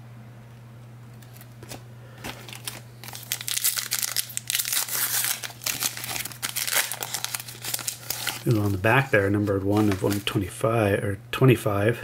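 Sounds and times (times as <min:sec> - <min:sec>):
plastic wrapper tearing and crinkling: 0:01.2 - 0:10.3.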